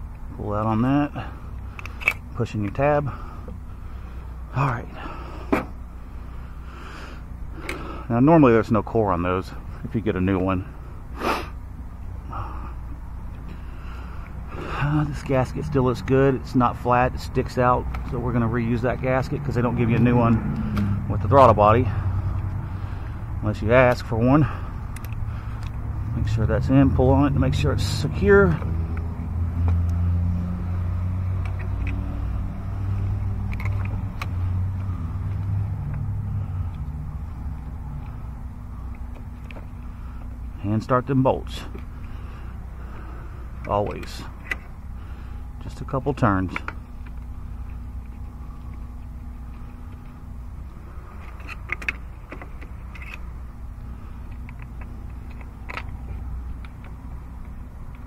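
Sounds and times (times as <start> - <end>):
low mechanical hum: 0.0 - 58.0
light clicks and taps: 54.2 - 58.0.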